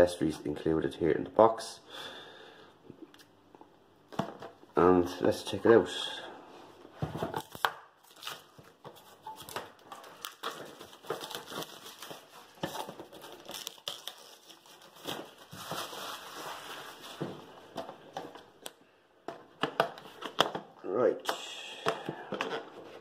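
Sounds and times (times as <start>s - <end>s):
stiff plastic crinkling: 7.4s - 17.7s.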